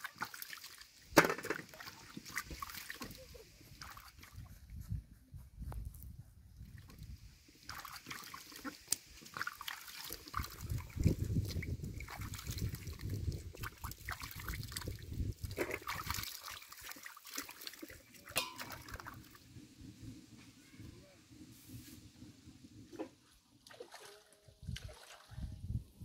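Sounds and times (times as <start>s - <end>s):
water splashing in metal basin: 0.0s - 4.3s, 7.6s - 19.4s, 23.6s - 25.5s.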